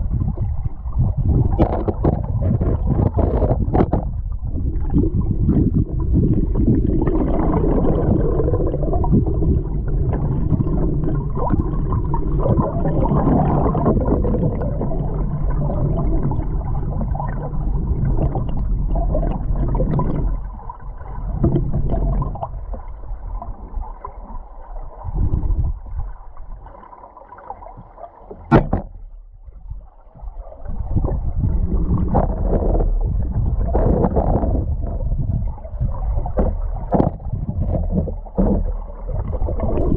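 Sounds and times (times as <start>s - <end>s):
muffled underwater river current: 0.0s - 39.9s
sharp knock: 28.5s - 29.0s
small knocks: 36.3s - 38.8s.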